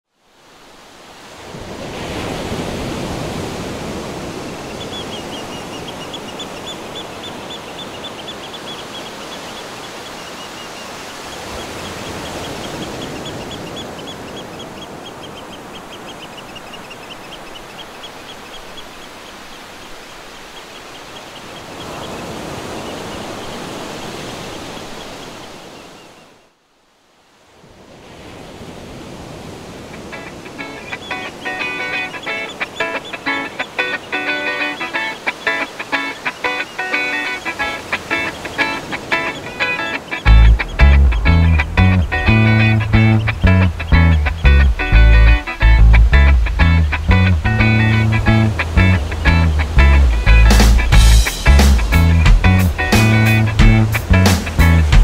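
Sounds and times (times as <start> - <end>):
ocean surf washing on shore: 0.1 - 26.5, 27.1 - 55.0
high rapid chirping: 30.6 - 55.0.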